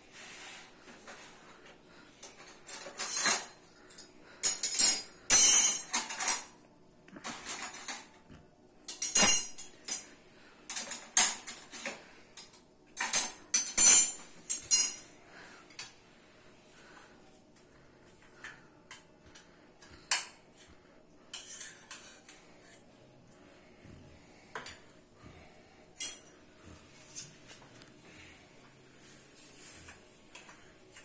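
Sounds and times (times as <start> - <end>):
spoons clinking on steel plates: 2.2 - 6.5, 8.8 - 10.1, 10.7 - 15.2, 21.3 - 22.8, 26.0 - 26.4.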